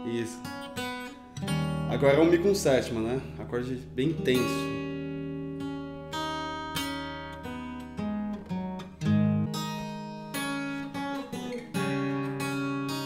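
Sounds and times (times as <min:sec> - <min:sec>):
acoustic guitar fingerstyle notes: 0:00.0 - 0:13.0
guitar chord strummed: 0:00.0 - 0:13.0.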